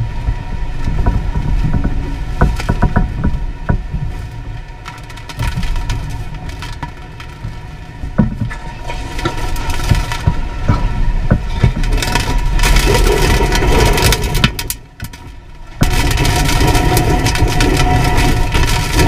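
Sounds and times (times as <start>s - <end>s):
driving rain: 0.0s - 19.0s
hurricane wind: 0.0s - 19.0s
debris knocking: 5.1s - 19.0s.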